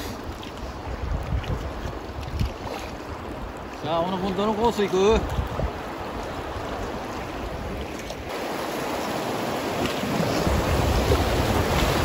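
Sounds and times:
wind buffeting microphone: 0.0 - 4.0, 5.1 - 8.0, 9.4 - 12.0
rushing river water: 0.0 - 12.0.

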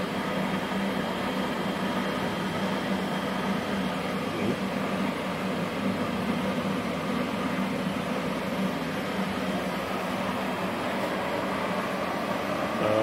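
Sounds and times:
welding equipment whirring hum: 0.0 - 13.0.

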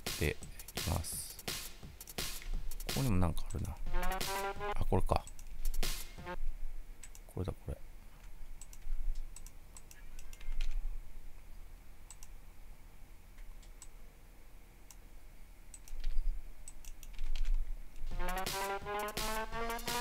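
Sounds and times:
music playback: 0.0 - 6.4, 18.1 - 20.0
mouse and keyboard clicks: 15.7 - 17.6.

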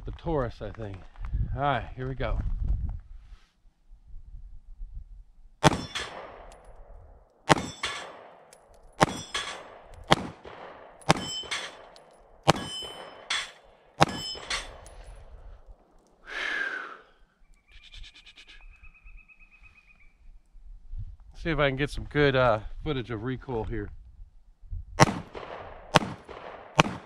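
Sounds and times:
pistol shots: 5.6 - 6.6, 7.5 - 14.9, 25.0 - 27.0
metal targets clanging: 5.6 - 6.8, 7.5 - 15.4.

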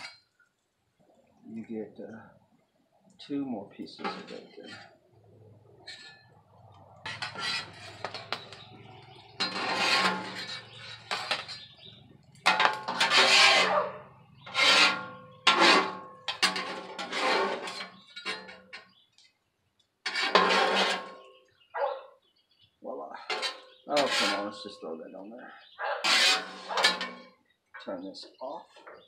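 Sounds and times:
metal spatula scraping griddle: 0.0 - 0.2, 4.0 - 5.0, 5.7 - 19.0, 20.0 - 21.3, 23.2 - 24.8, 26.0 - 27.4.

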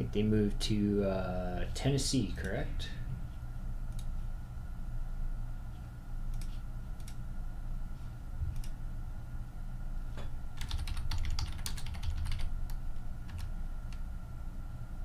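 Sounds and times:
computer keyboard typing: 10.6 - 14.0.

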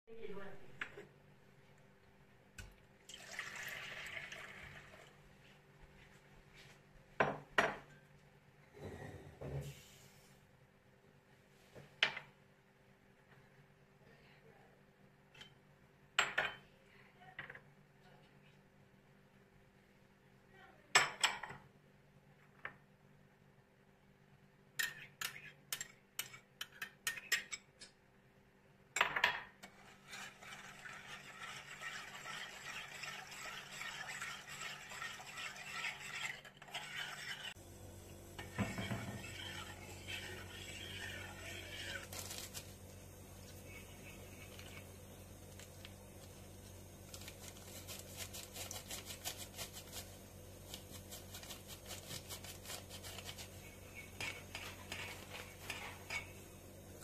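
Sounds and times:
low steady hum: 27.8 - 57.0
metal spoon scraping a pot: 29.6 - 37.6, 38.4 - 42.8, 50.7 - 56.4
whisk clicking against a pot: 30.0 - 37.6.

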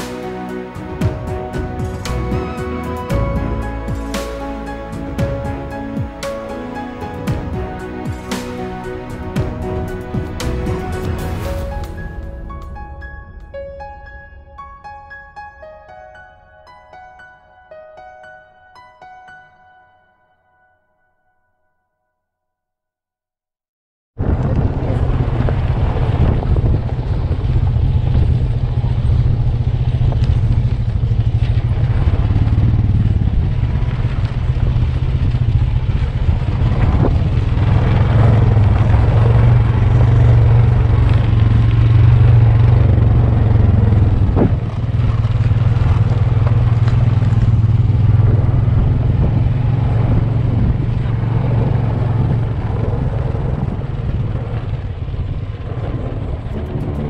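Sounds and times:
vehicle engine droning: 24.2 - 57.0.

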